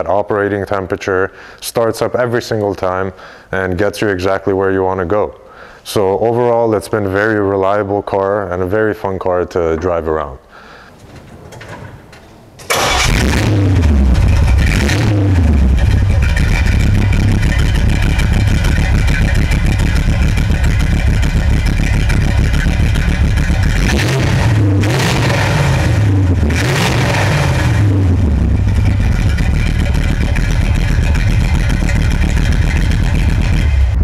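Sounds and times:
car engine idling: 0:10.5 - 0:34.0
engine revving: 0:12.6 - 0:34.0.

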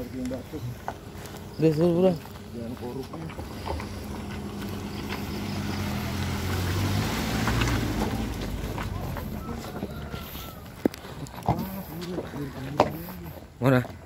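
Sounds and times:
car passing by: 0:03.4 - 0:10.7.

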